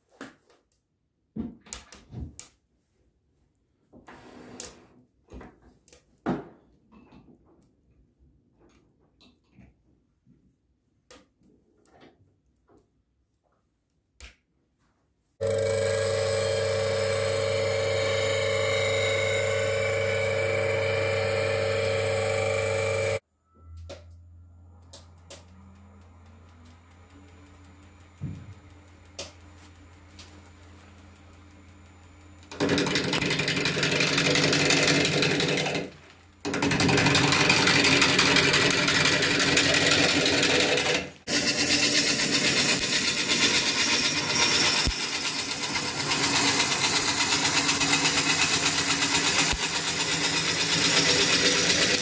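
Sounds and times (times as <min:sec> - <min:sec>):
lathe motor hum: 0:15.4 - 0:23.2, 0:36.5 - 0:52.0
turning tool cutting wood: 0:15.4 - 0:23.2, 0:32.4 - 0:52.0.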